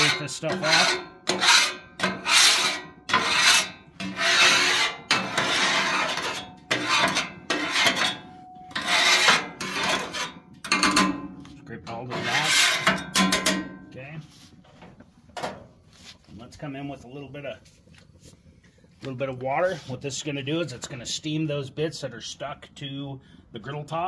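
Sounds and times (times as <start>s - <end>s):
metal scraper on hot griddle: 0.0s - 11.2s, 11.9s - 13.7s.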